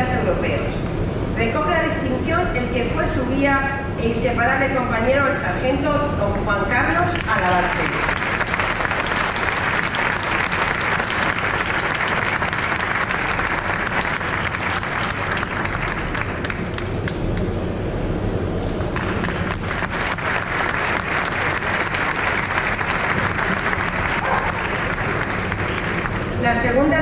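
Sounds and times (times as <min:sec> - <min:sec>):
audience applauding: 0:07.2 - 0:17.2, 0:18.8 - 0:26.3.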